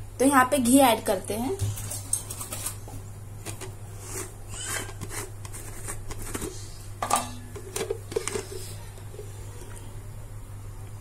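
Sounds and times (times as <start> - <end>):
spoon scraping container: 4.0 - 6.7
steady low hum: 5.2 - 11.0.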